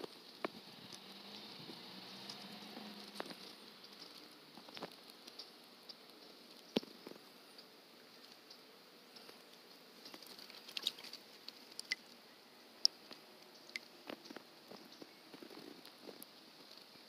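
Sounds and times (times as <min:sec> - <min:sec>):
soft ticks: 0:00.0 - 0:12.2, 0:12.8 - 0:16.9
water splashing: 0:10.1 - 0:12.2.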